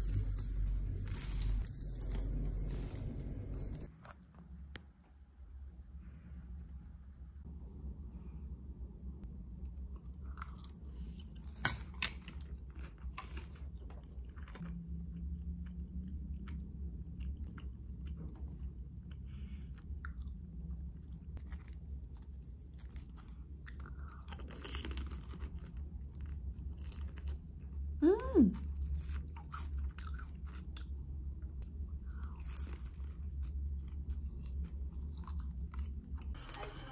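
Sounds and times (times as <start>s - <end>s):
low steady hum: 0.0s - 36.9s
person chewing crunchy fried food: 12.2s - 28.0s, 28.6s - 36.4s.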